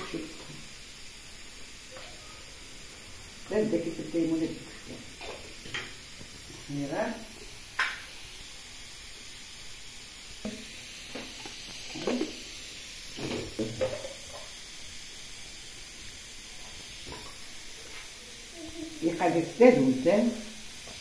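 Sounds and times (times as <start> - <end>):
steady hiss: 0.0 - 21.0
spice grinder knocking and rattling: 10.4 - 14.6, 16.6 - 18.1.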